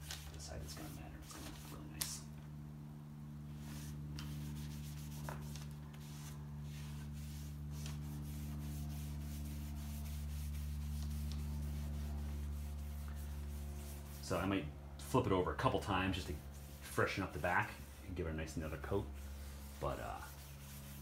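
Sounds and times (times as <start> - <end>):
low hum: 0.0 - 21.0
rag rubbing on wood: 3.6 - 14.5, 16.1 - 21.0.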